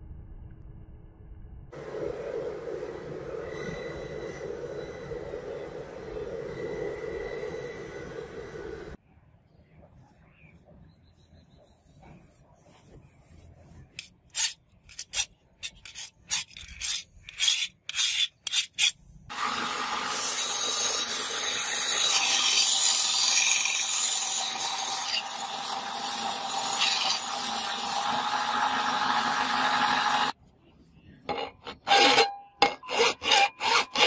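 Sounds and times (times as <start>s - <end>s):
scraping strokes: 11.5s - 19.0s
belt grinder grinding steel: 14.4s - 30.3s, 31.6s - 34.0s.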